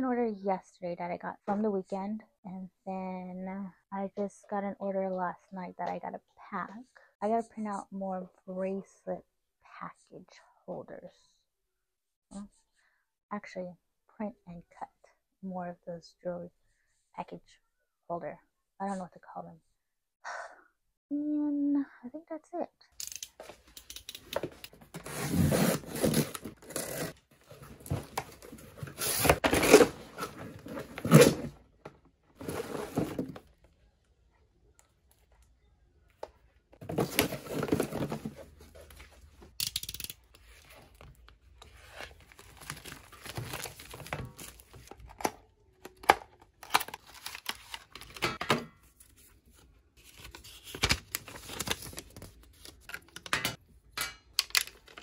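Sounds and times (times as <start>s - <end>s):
cardboard and tape tearing: 25.0s - 31.5s
packaging rustling: 36.8s - 39.0s, 41.8s - 45.2s, 46.6s - 48.2s, 50.0s - 53.3s
paper leaflet unfolding: 50.0s - 52.9s.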